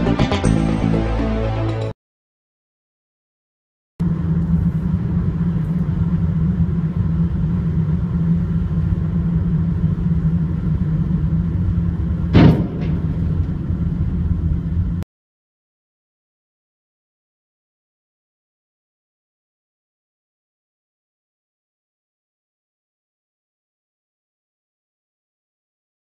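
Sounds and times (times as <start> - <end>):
car road and engine rumble: 4.0 - 15.0
loud metal bang: 12.3 - 14.0.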